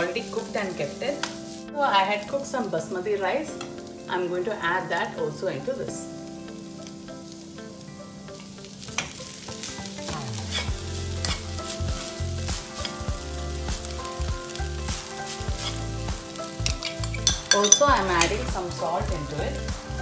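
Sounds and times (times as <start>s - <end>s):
light sizzling: 0.0s - 20.0s
spoon scraping and knocking pan: 10.2s - 13.9s, 14.5s - 19.3s.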